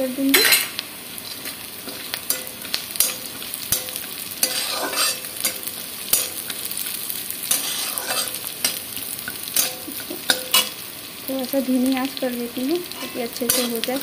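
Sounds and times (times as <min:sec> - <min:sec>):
nuts sizzling in hot oil: 0:00.0 - 0:14.0
metal spatula scraping pan: 0:00.4 - 0:06.9, 0:07.5 - 0:10.8, 0:12.9 - 0:14.0.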